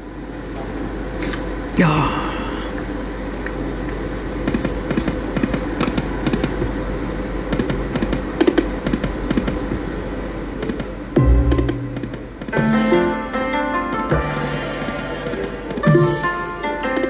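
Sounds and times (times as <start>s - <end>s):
steady background hum: 0.0s - 17.0s.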